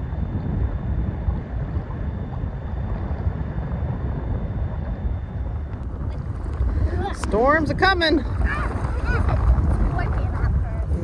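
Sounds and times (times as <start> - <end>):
wind buffeting microphone: 0.0 - 11.0
waves washing onto shore: 5.9 - 11.0.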